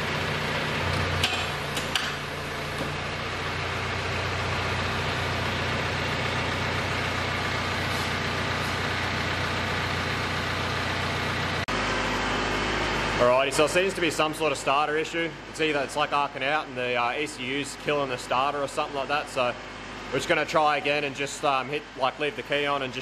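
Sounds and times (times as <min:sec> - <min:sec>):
mechanical hum: 0:00.0 - 0:10.7.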